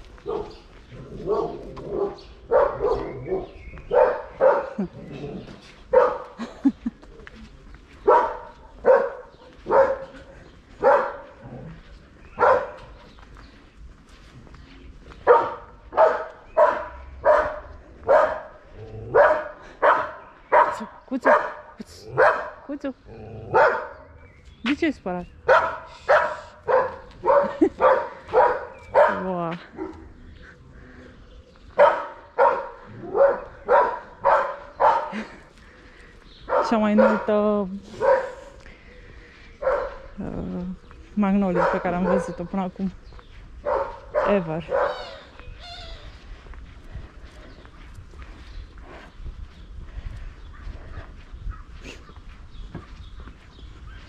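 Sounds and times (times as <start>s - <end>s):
dog barking: 0.2s - 4.8s, 5.9s - 6.4s, 8.0s - 10.2s, 10.8s - 11.4s, 12.3s - 13.1s, 15.2s - 22.7s, 23.5s - 24.1s, 25.5s - 30.2s, 31.8s - 35.2s, 36.5s - 38.6s, 39.6s - 40.1s, 41.6s - 42.4s, 43.6s - 45.3s.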